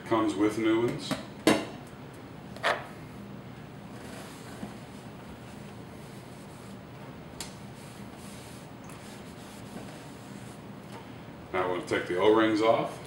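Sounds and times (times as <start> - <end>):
cloth rubbing against faucet: 3.9 - 6.8, 7.7 - 10.7.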